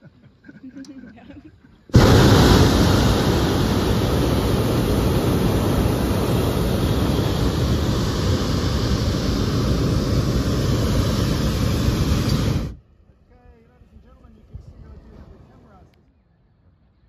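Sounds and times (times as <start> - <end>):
propane burner blast: 1.9 - 12.8.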